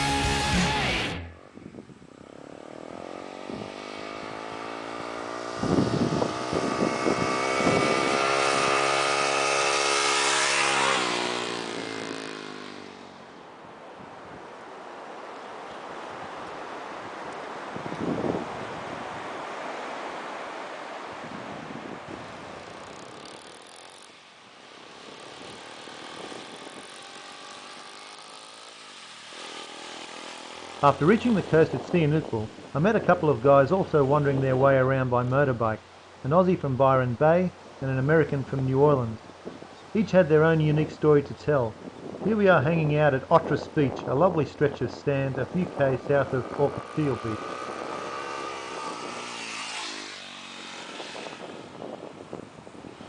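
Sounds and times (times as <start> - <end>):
rock music: 0.0 - 1.4
surf: 0.0 - 1.4, 30.7 - 51.4
motorcycle engine passing: 0.0 - 53.0
wind: 0.0 - 53.0.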